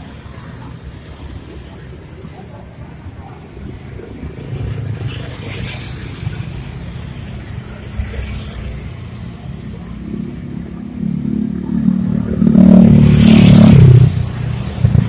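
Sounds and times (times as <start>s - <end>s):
vehicle engine passing by: 7.8s - 15.0s.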